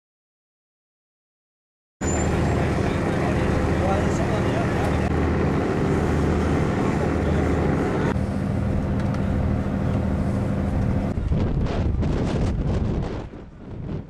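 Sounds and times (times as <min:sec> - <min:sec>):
engine hum: 0:02.0 - 0:14.0
wind buffeting microphone: 0:08.9 - 0:14.0.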